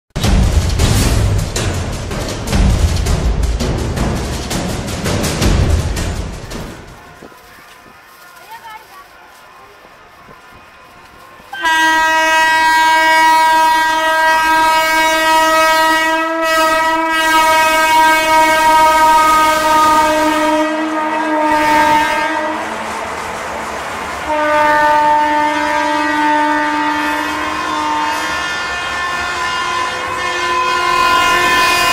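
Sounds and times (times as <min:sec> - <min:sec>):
rushing noise: 0:00.2 - 0:08.3, 0:17.4 - 0:26.5
locomotive horn blast: 0:10.3 - 0:23.1, 0:24.2 - 0:31.9.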